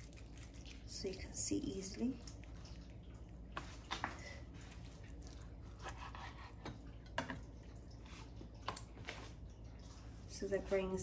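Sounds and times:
knife cutting meat: 5.6 - 6.8.

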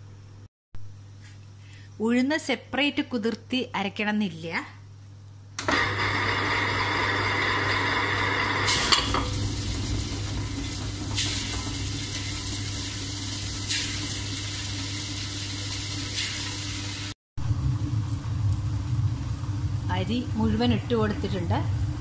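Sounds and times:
wet grinder motor hum: 5.6 - 12.8.

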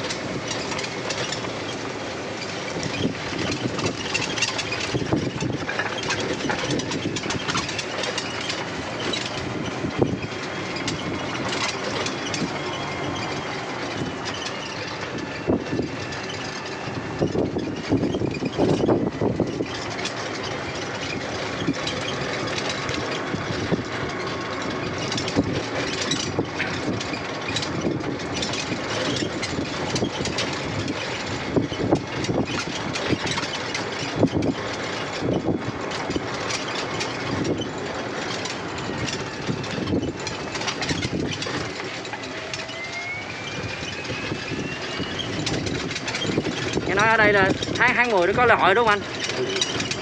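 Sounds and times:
cart body knocking and rattling: 0.0 - 50.0
wind and road noise: 0.0 - 50.0
thin rising whine: 38.6 - 47.2.

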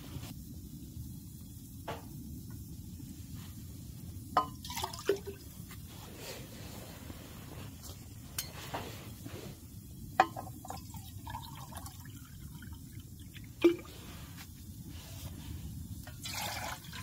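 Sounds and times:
low steady rumble: 0.0 - 17.0
water pouring into metal mug: 4.4 - 5.5, 10.2 - 13.9, 16.0 - 17.0
metal clinks of cup and bottle: 10.2 - 10.7.

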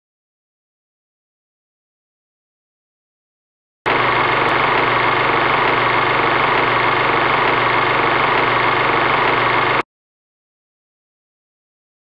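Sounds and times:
film projector whirring: 3.9 - 9.8.

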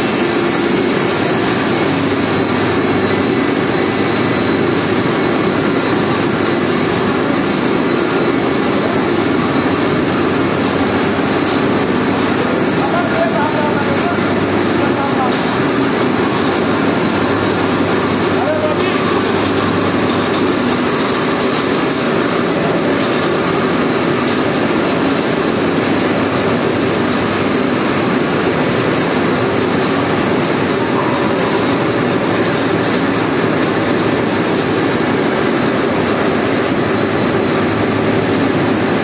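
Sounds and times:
machinery drone: 0.0 - 39.0.

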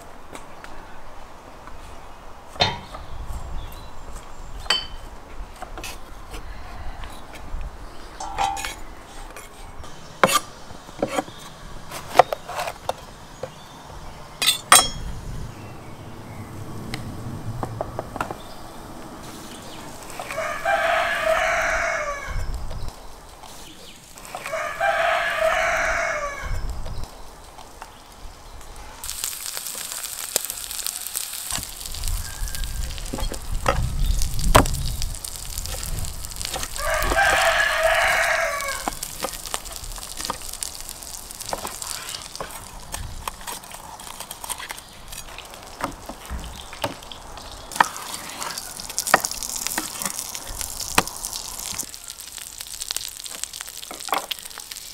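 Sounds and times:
rooster crowing: 6.5 - 7.3, 19.6 - 22.5, 24.3 - 26.6, 36.7 - 39.1.

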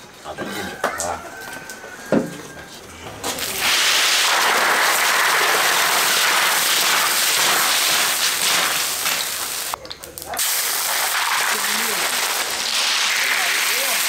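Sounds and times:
snails sizzling in a hot wok: 3.4 - 14.0.

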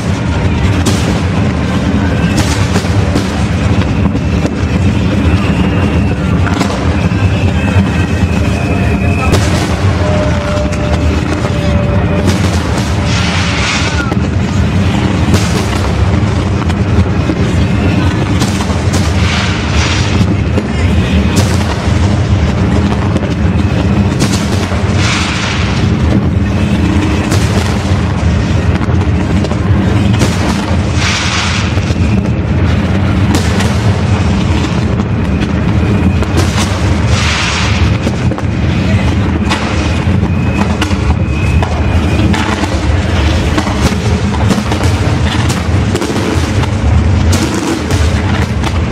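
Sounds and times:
fireworks booming: 0.0 - 48.9.

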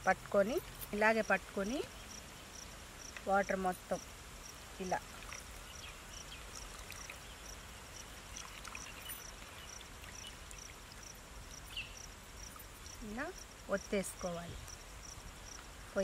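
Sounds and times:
liquid trickling into plastic bowl: 6.4 - 11.1.

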